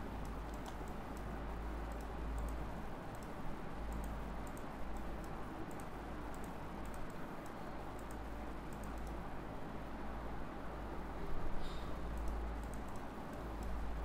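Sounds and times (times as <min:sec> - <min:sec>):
steady low hum: 0:00.0 - 0:14.0
computer mouse clicking: 0:00.2 - 0:09.2, 0:12.1 - 0:13.8.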